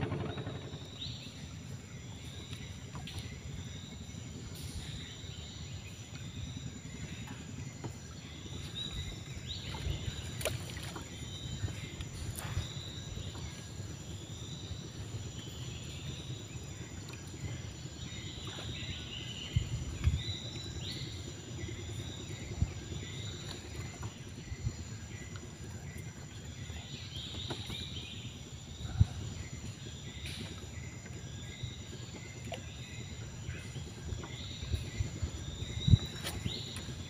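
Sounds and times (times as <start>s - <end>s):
sharp thumps: 0.0s - 1.3s
low rumbling noise: 0.0s - 37.0s.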